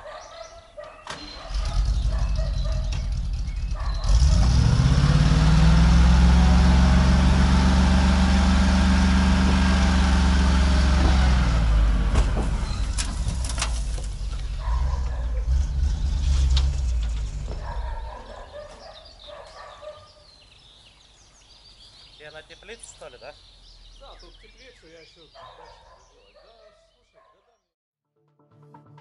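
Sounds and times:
dump truck engine revving: 1.1 - 18.9.

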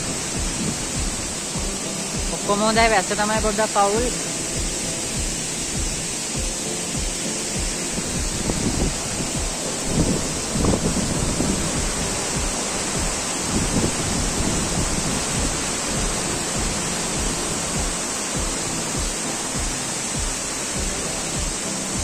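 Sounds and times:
wind buffeting microphone: 0.0 - 1.7, 8.0 - 19.1
waterfall rushing: 0.0 - 22.0.

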